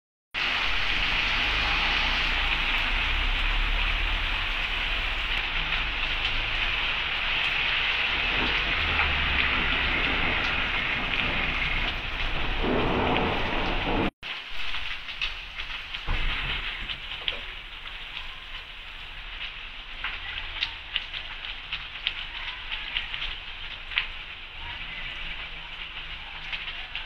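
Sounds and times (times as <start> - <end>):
low rumbling: 0.4 - 14.7
heavy rain falling: 0.4 - 27.0.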